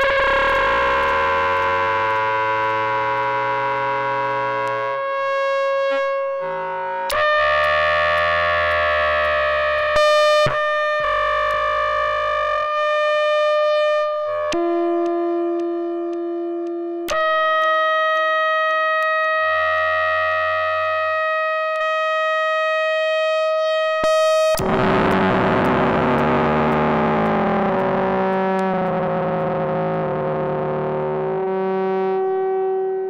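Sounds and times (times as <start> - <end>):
buzzy synthesizer tones: 0.0 - 33.0
clicks at pitch changes: 0.0 - 33.0
low synth tone: 0.0 - 33.0.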